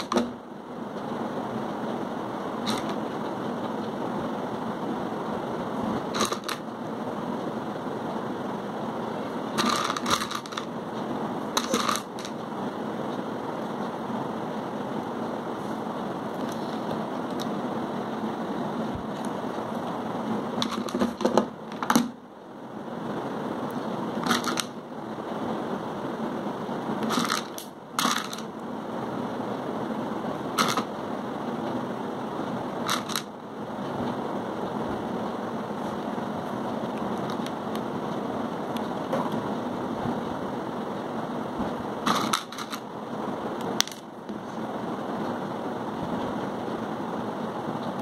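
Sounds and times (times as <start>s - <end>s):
steady background hum: 0.0s - 48.0s
plastic bulbs clicking and rattling: 9.6s - 10.7s, 11.6s - 12.4s, 24.2s - 24.7s, 27.0s - 28.5s, 30.6s - 30.9s, 32.9s - 33.3s, 42.1s - 42.8s.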